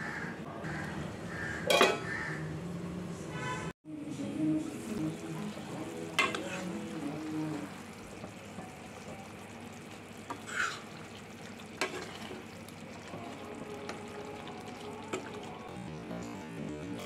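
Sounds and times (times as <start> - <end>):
gravy sizzling and bubbling: 4.7 - 17.0.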